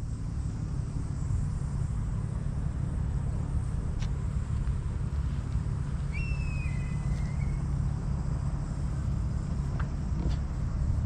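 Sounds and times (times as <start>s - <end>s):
low outdoor rumble: 0.0s - 11.0s
thin high-pitched call: 6.1s - 7.7s.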